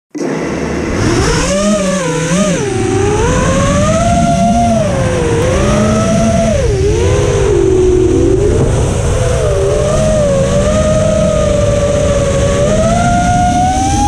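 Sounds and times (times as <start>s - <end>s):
drone motors whining: 0.2s - 14.0s
rushing air noise: 0.2s - 14.0s.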